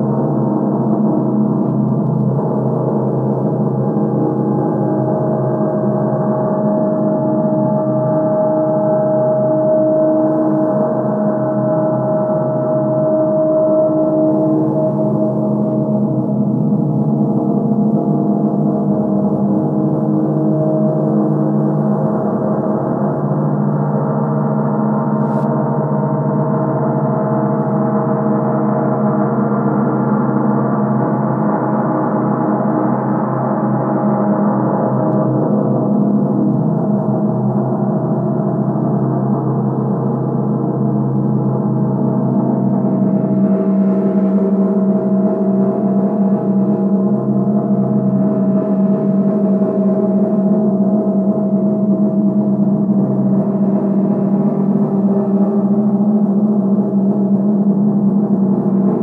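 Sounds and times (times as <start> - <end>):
reversed gong drone: 4.4 - 24.2.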